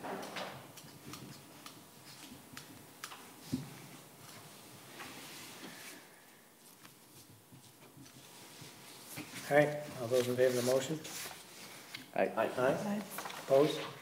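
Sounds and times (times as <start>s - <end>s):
paper rustling: 8.0s - 12.0s, 12.6s - 14.0s.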